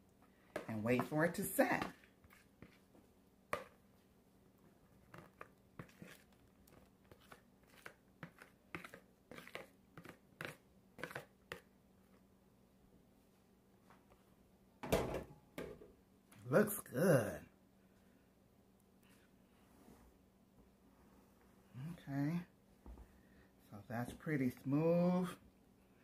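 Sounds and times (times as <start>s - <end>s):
plastic spoon scraping bowl: 1.8s - 2.8s, 5.0s - 11.6s.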